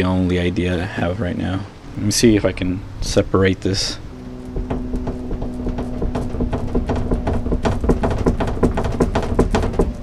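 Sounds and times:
wooden knocking and rattling: 2.3s - 10.0s.

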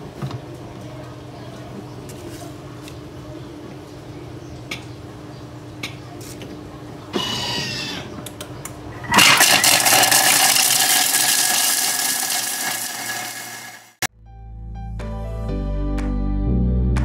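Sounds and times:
blender whirring grind: 9.0s - 14.1s.

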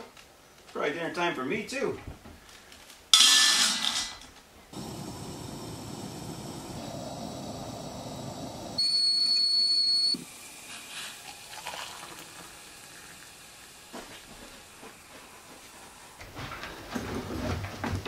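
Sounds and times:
kettle whistling: 4.7s - 16.2s
camp stove burner rushing: 4.7s - 17.2s
water pouring into mug: 10.2s - 14.8s.

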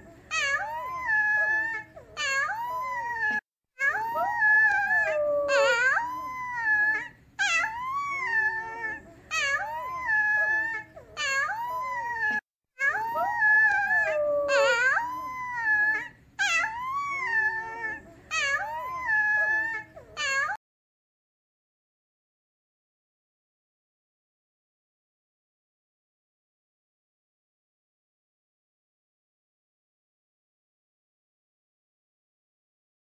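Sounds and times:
pup howling: 0.3s - 20.6s.

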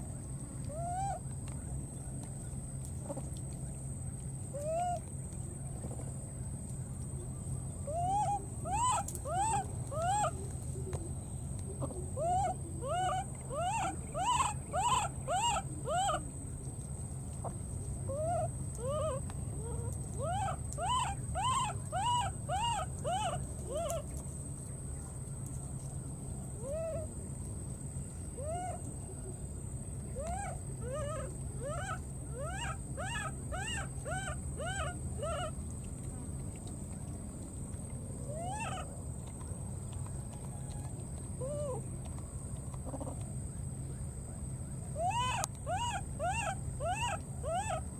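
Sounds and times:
baby monkey crying: 7.9s - 10.3s, 12.2s - 16.2s, 18.1s - 24.0s, 30.2s - 35.5s, 38.3s - 38.8s, 45.0s - 47.8s.

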